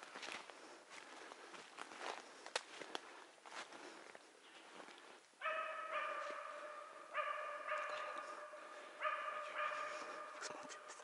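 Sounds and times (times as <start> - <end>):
dog barking: 5.4 - 11.0.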